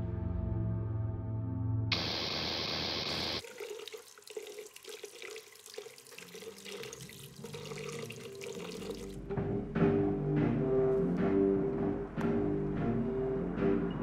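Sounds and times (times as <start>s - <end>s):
loud static hiss: 1.9s - 3.4s
tap water running into sink: 2.5s - 9.2s.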